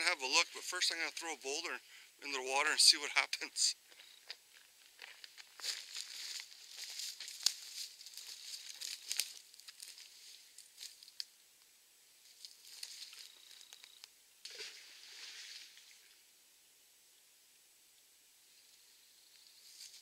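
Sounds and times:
footsteps crunching on dry brush: 0:03.9 - 0:11.2, 0:12.3 - 0:13.9
twigs snapping: 0:07.2 - 0:11.3.

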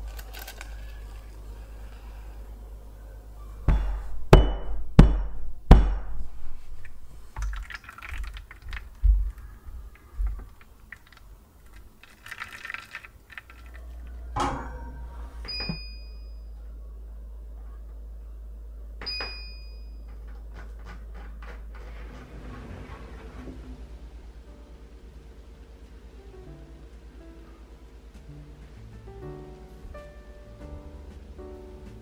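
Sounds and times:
water pouring into baking tray: 0:07.4 - 0:09.1, 0:10.9 - 0:14.0
oven control panel beep: 0:14.4 - 0:16.6, 0:19.0 - 0:20.2.

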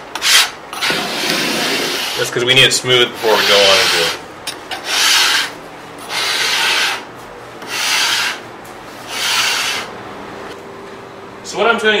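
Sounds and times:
scraping across a benchtop: 0:00.2 - 0:02.3, 0:03.1 - 0:09.9.

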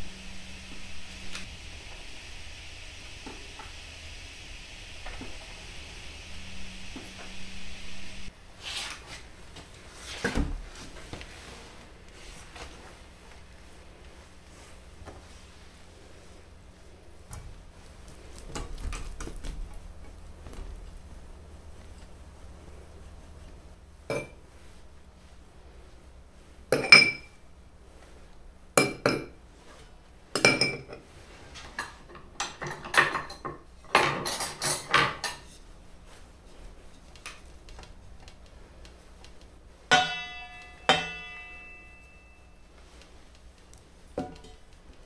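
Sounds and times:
utensils knocking on brass tray: 0:39.9 - 0:42.1.

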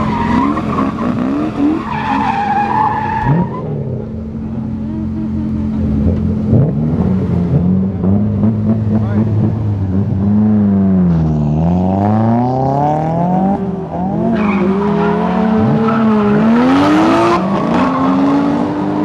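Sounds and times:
engine revving: 0:00.0 - 0:02.2, 0:03.2 - 0:19.0
tyres squealing: 0:00.0 - 0:03.7
car engine idling: 0:00.0 - 0:11.2.

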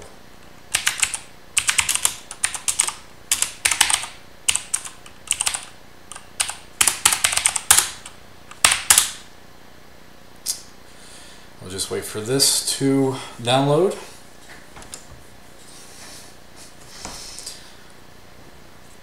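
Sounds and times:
mechanical keyboard typing: 0:00.7 - 0:09.2.

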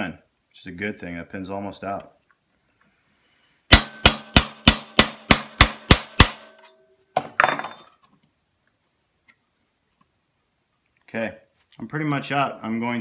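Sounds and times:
hammer striking steel punch: 0:03.7 - 0:07.3
hammer clattering on wooden bench: 0:07.2 - 0:08.0.

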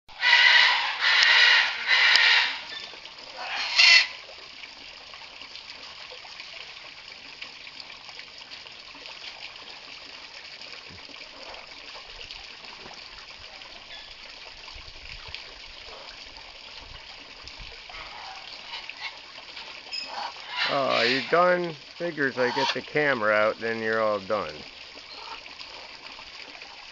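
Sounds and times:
macaw squawking: 0:00.1 - 0:04.2, 0:17.9 - 0:19.2, 0:19.9 - 0:21.6, 0:22.4 - 0:22.8, 0:25.1 - 0:25.4
hose water splashing into birdbath: 0:00.1 - 0:26.9.

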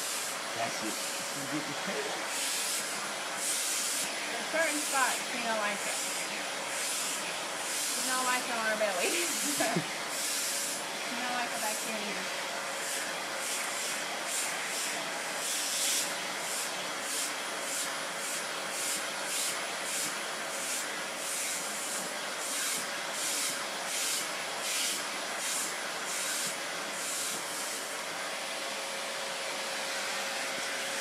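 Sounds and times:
steady motor hum: 0:00.0 - 0:18.4
vacuum cleaner suction hiss: 0:00.0 - 0:31.0.

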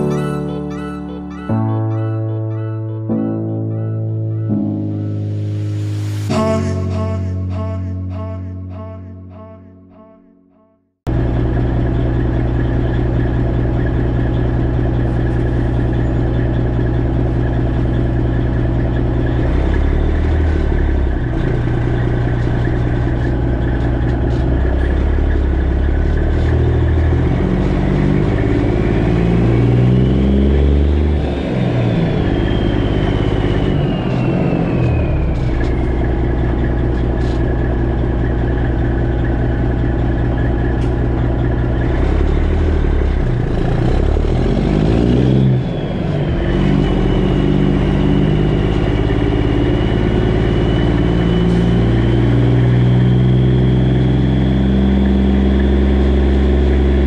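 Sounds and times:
diesel truck engine running: 0:11.1 - 0:57.0.

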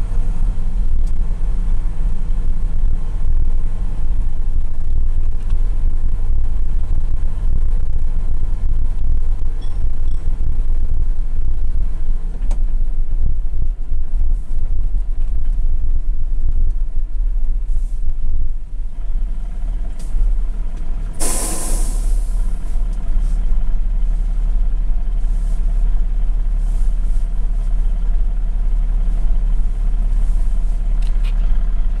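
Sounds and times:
diesel engine running: 0:00.0 - 0:32.0
compressed air hiss: 0:21.2 - 0:22.5.

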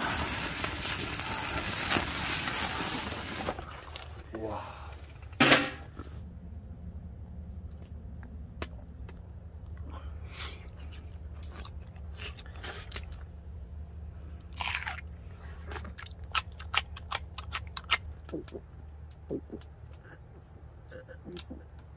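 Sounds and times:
steady low hum: 0:00.0 - 0:21.9
person chewing: 0:09.7 - 0:13.4, 0:14.4 - 0:21.8.

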